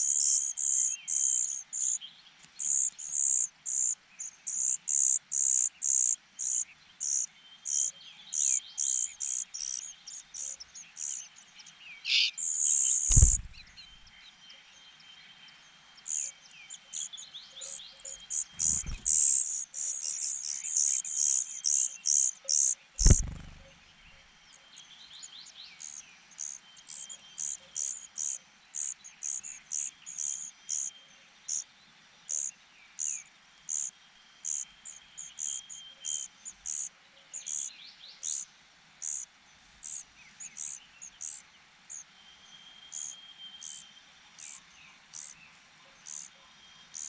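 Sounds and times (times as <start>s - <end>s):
nestlings begging cheeps: 12.1s - 13.7s, 18.3s - 23.7s
low thump: 13.1s - 13.6s.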